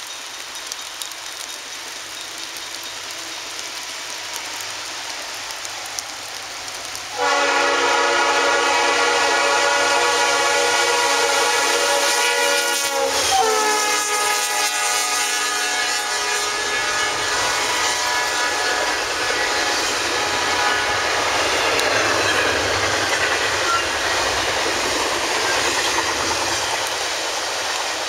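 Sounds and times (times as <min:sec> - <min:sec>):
train rumble: 0:00.0 - 0:28.0
locomotive horn blast: 0:07.1 - 0:19.5.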